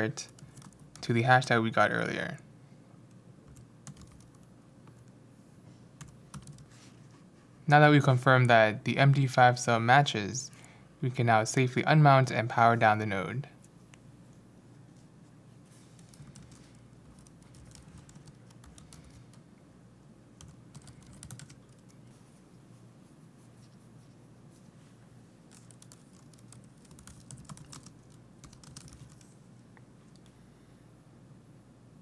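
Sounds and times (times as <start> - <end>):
computer keyboard typing: 0.3 - 1.1, 3.5 - 5.1, 6.0 - 6.7, 15.9 - 19.4, 20.4 - 22.0, 25.5 - 29.3.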